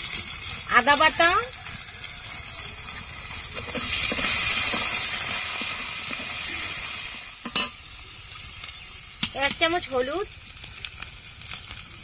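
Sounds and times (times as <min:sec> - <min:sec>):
vegetables sizzling in oil: 0:00.0 - 0:12.0
spatula scraping pan: 0:00.8 - 0:06.7.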